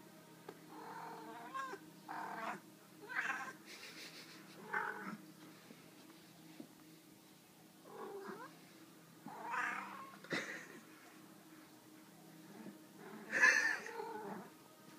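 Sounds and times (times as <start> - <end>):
kittens yowling mews: 0.8 - 3.6, 9.3 - 10.2.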